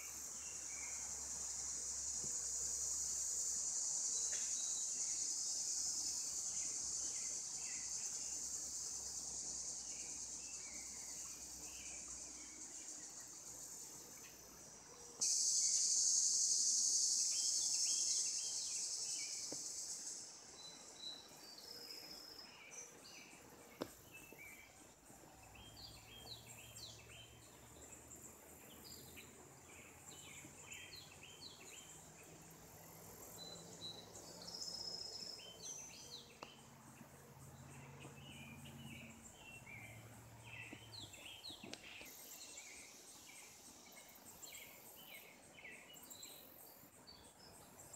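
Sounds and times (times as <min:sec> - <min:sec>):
loud high insect buzz: 0:15.2 - 0:21.1.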